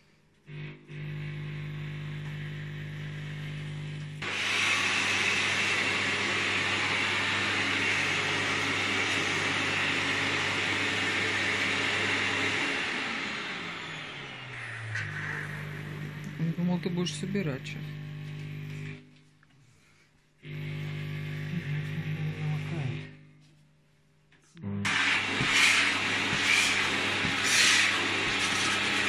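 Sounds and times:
vacuum cleaner motor hum: 0:00.0 - 0:19.2, 0:20.4 - 0:23.5, 0:24.9 - 0:29.0
hissing rush of suction: 0:14.5 - 0:16.1, 0:24.9 - 0:29.0.

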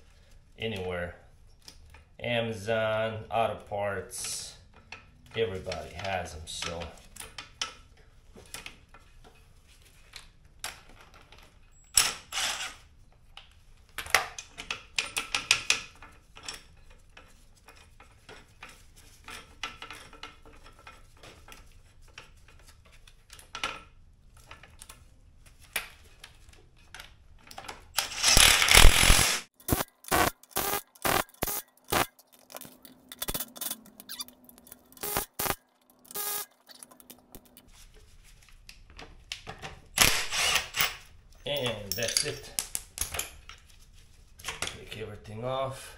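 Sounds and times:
metal hand tools clinking: 0:41.5 - 0:42.6.

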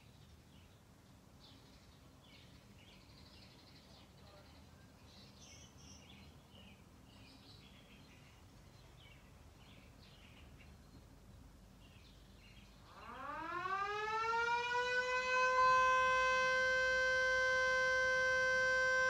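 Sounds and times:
faint birdsong: 0:00.0 - 0:18.8
siren wailing: 0:12.9 - 0:19.0.

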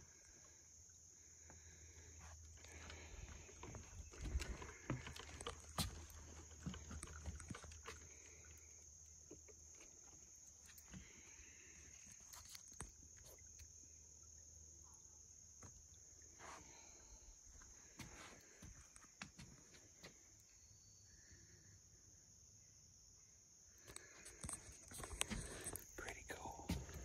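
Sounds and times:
footsteps on muddy trail: 0:02.7 - 0:08.3.

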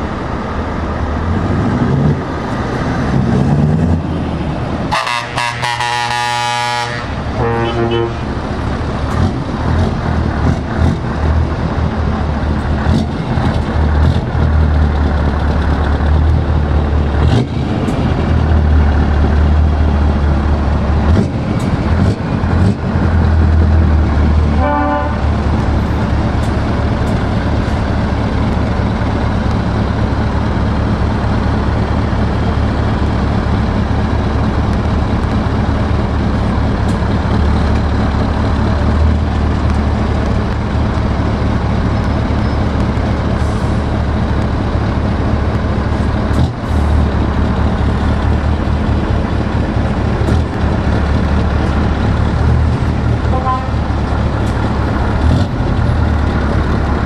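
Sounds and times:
truck diesel engine pulling away: 0:00.0 - 0:57.0
short horn toot: 0:04.9 - 0:08.3, 0:53.3 - 0:53.8.

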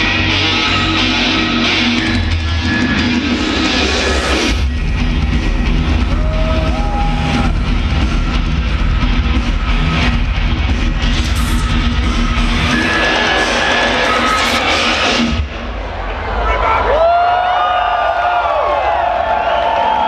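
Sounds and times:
electronic dance music with heavy bass: 0:00.0 - 0:15.9.

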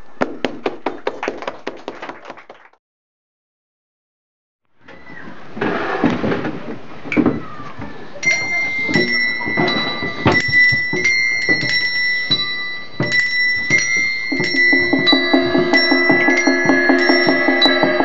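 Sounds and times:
gamelan music on metal percussion: 0:08.2 - 0:18.0
fast run of low repeated notes: 0:14.4 - 0:18.0.

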